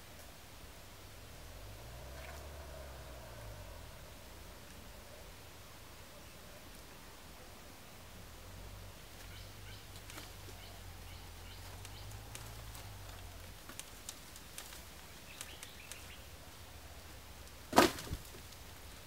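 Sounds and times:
ticks and creaks of climbing: 9.0s - 16.4s
bamboo bundle thumping on wooden platform: 17.7s - 18.4s.

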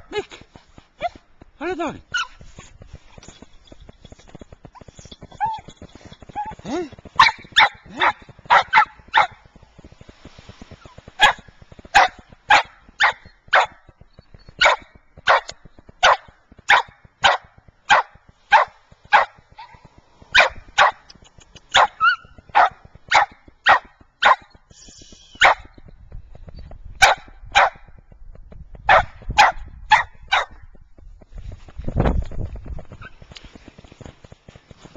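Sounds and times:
dog barking: 7.2s - 9.4s, 11.2s - 13.8s, 14.6s - 19.8s, 20.4s - 21.0s, 21.7s - 24.5s, 25.4s - 25.7s, 27.0s - 27.8s, 28.9s - 30.6s.

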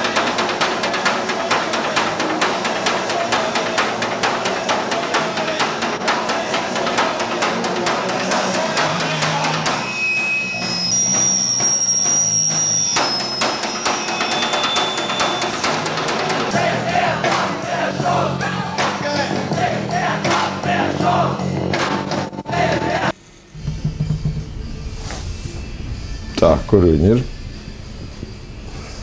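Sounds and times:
drum kit played hard: 0.0s - 10.0s, 23.6s - 24.7s
thin high ringing tones: 9.7s - 15.9s.

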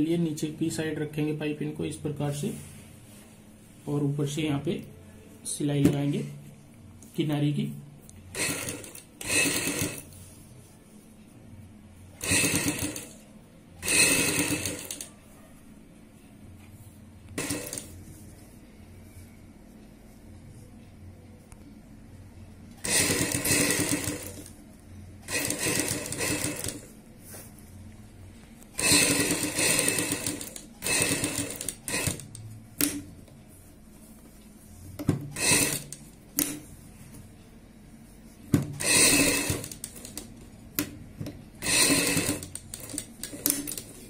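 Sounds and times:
sewing machine stitching: 8.3s - 10.2s, 12.2s - 13.2s, 13.8s - 15.1s, 17.4s - 18.0s, 22.8s - 24.5s, 25.2s - 26.9s, 28.8s - 33.0s, 35.3s - 36.6s, 38.7s - 40.3s, 41.6s - 44.0s.

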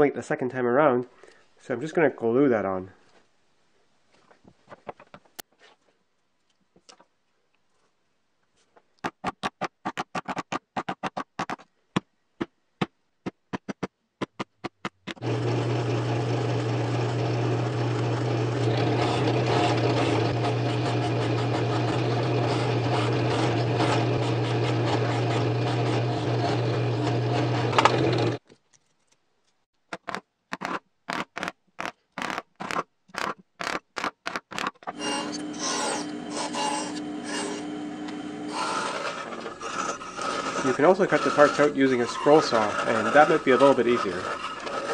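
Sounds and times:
band saw cutting plywood: 15.0s - 28.4s, 30.0s - 44.9s
drill press motor humming: 15.1s - 28.4s, 34.8s - 44.9s
sharp clicks and knocks: 27.7s - 35.5s.

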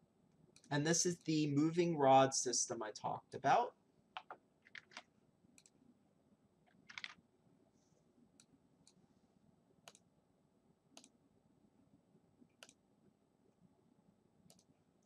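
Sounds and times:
faint computer mouse clicks: 11.0s - 11.2s, 12.6s - 12.8s, 14.5s - 14.7s.

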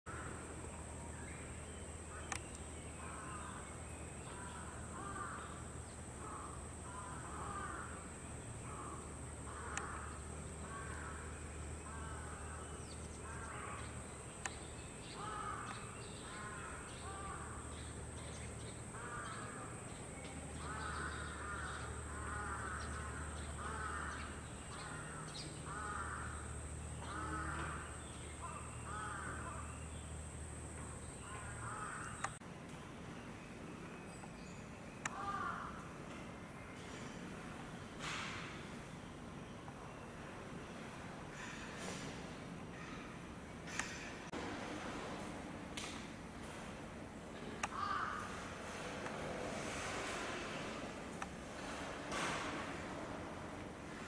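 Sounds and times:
birds calling: 0.1s - 32.4s, 47.4s - 54.0s
sharp clicks: 2.3s - 2.6s.

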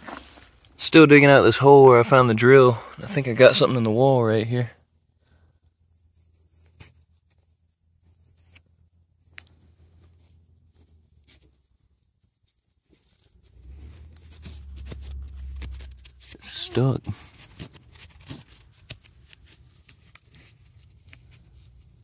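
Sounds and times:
low rumble: 13.5s - 16.5s.

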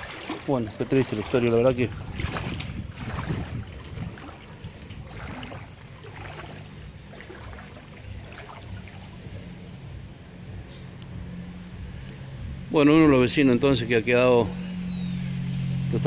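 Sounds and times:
floodwater sloshing: 0.0s - 10.1s
low steady hum: 0.0s - 14.2s.

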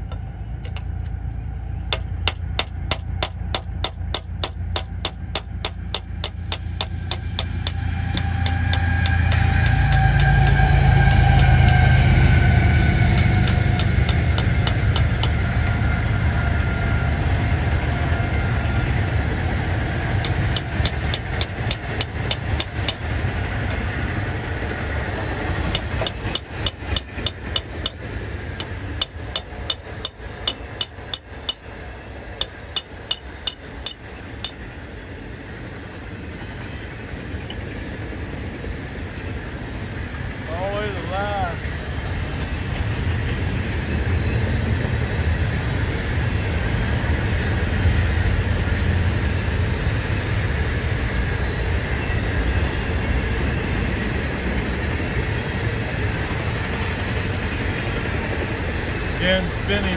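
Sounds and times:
hammer striking metal drift: 1.9s - 15.8s, 20.2s - 23.1s, 25.7s - 28.0s, 28.6s - 31.7s, 32.4s - 34.6s.

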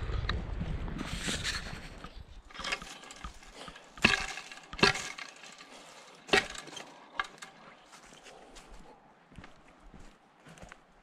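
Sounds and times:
dry wood cracking and snapping: 2.5s - 7.8s.

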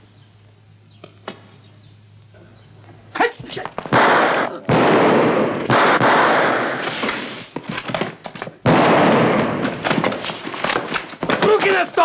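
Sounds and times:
gunshot-like bang with crash: 3.9s - 7.3s, 8.7s - 10.1s
sharp knocks and clatter: 9.2s - 12.0s.

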